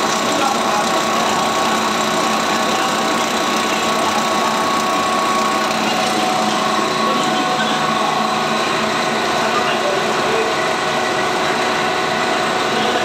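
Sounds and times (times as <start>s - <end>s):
machinery running with whine: 0.0s - 13.0s.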